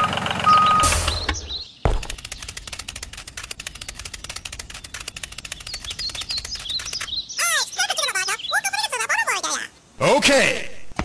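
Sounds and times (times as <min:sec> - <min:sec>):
swooping bird-like chirps: 0:00.5 - 0:09.6
rapid clicking rattle: 0:02.0 - 0:07.1.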